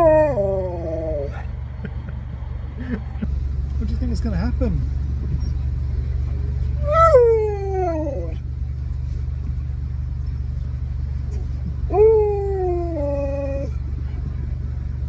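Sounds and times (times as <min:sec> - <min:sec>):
dog howling: 0:00.0 - 0:01.3, 0:06.8 - 0:08.4, 0:11.9 - 0:13.8
car engine idling: 0:00.0 - 0:15.0.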